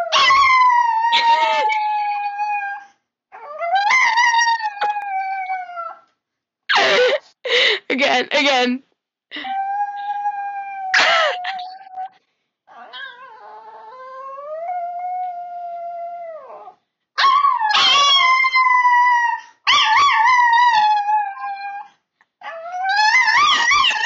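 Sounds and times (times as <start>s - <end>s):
small dog howling: 12.7s - 24.0s.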